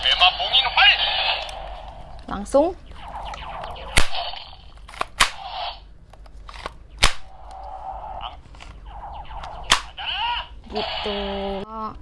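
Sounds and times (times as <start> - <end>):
toy gunshot-like cracks: 3.8 - 5.6, 6.6 - 7.3, 9.4 - 10.0
toy hissing whooshing effects: 5.3 - 5.8, 7.3 - 11.6.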